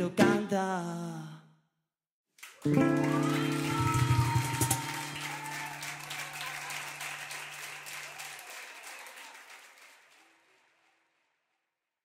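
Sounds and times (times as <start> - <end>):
audience applauding: 2.4 - 11.3.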